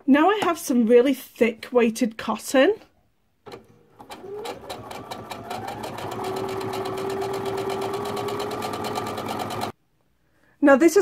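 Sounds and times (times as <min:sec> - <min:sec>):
sewing machine stitching: 0:03.5 - 0:09.7.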